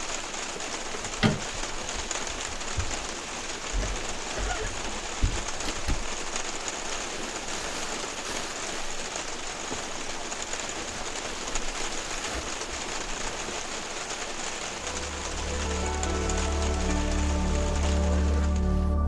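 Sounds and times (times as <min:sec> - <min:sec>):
rain on a vehicle roof: 0:00.0 - 0:19.0
low knocks: 0:01.2 - 0:06.3.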